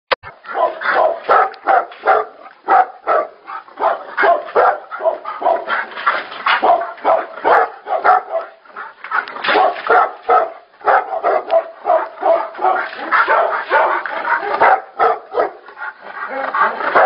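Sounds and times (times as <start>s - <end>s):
dog barking: 0.4s - 5.7s, 6.6s - 8.6s, 9.5s - 15.6s.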